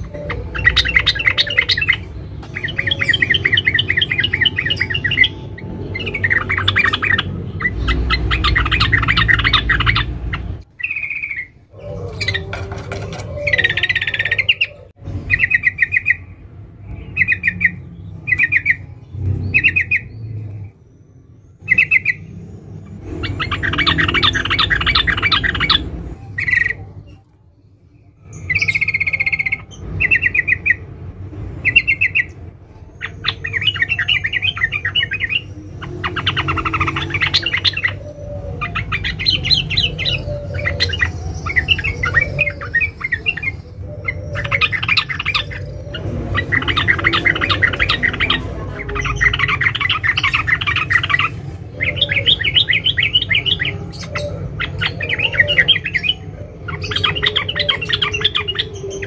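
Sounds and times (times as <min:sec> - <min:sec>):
bird rapid chattering: 0:00.0 - 0:16.3, 0:23.0 - 0:27.0, 0:33.0 - 0:59.0
bird chirping: 0:00.0 - 0:59.0.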